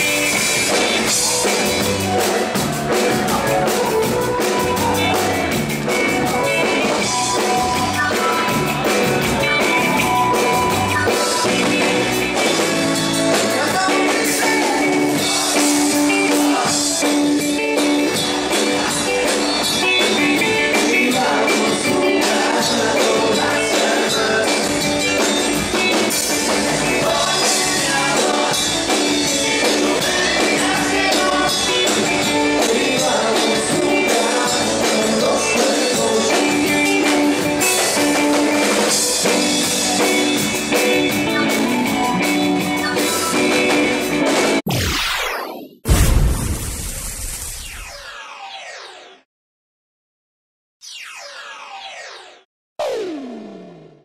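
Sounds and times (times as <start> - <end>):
drum kit beat: 0.0 - 44.6
live dance band playing: 0.0 - 44.6.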